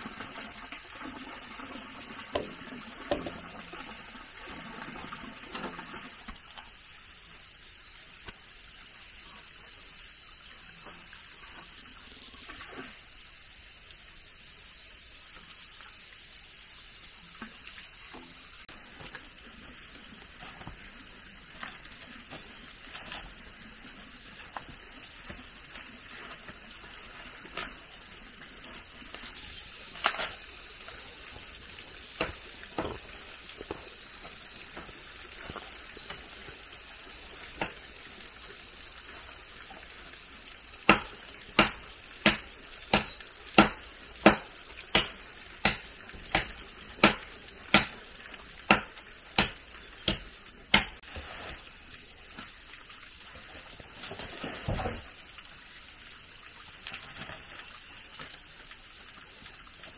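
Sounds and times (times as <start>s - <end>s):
sharp chopping strikes: 40.9s - 48.0s, 48.7s - 51.0s.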